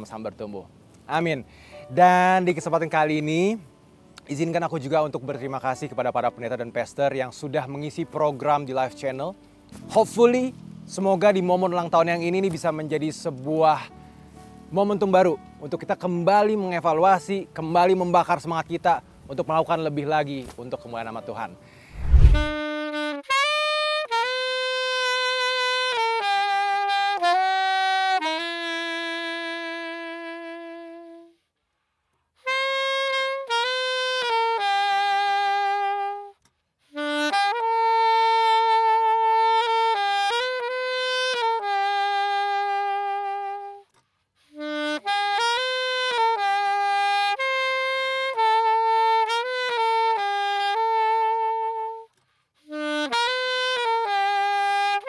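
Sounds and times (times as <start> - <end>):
solo saxophone melody: 22.0 - 31.6, 32.3 - 55.0.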